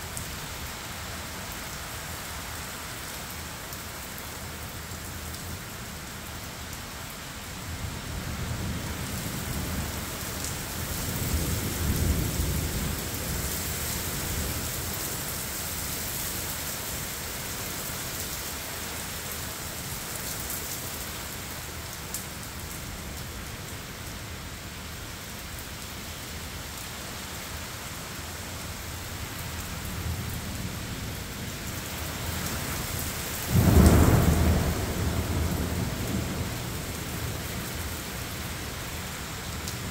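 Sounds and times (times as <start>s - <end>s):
torrential rain pouring: 0.0s - 39.9s
low roll of thunder: 33.4s - 37.4s
loud clap of close thunder: 33.5s - 36.6s.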